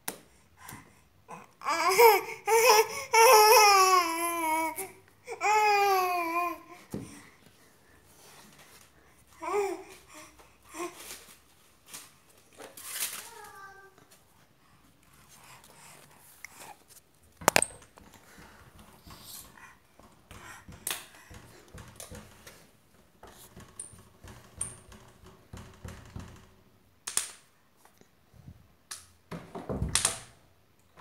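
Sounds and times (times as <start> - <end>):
taps and knocks: 17.4 - 22.6, 23.2 - 26.5.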